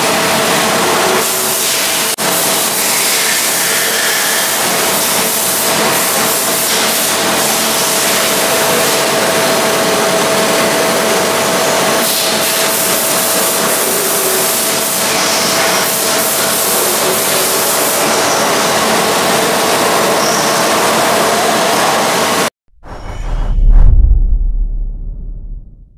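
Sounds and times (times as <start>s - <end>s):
machine whine: 0.0s - 25.9s
coolant spraying and splashing: 1.2s - 8.9s.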